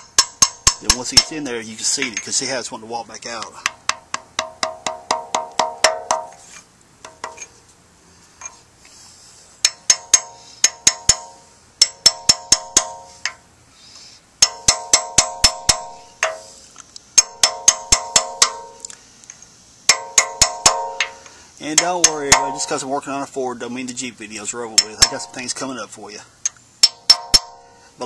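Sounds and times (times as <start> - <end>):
hammer tapping metal tool: 0.0 - 2.4, 3.4 - 6.4, 7.0 - 7.5, 9.6 - 13.4, 14.4 - 16.6, 17.2 - 18.8, 19.9 - 22.8, 24.8 - 25.4, 26.4 - 27.6.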